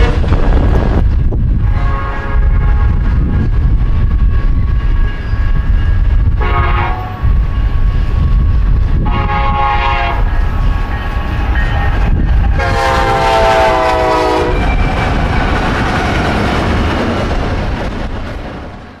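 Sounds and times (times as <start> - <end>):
locomotive air horn blasts: 0.0 - 0.4, 1.6 - 3.4, 6.4 - 7.2, 9.0 - 10.3, 12.6 - 14.6
freight train rumble and wheel clatter: 0.0 - 19.0.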